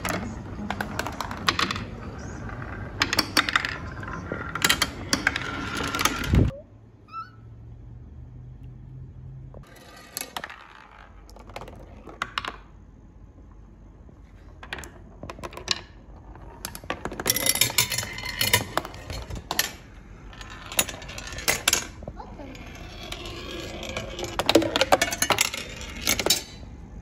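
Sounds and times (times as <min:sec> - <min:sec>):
marbles clattering down wooden ramps: 0:02.6 - 0:06.5, 0:09.6 - 0:12.7, 0:14.5 - 0:26.6.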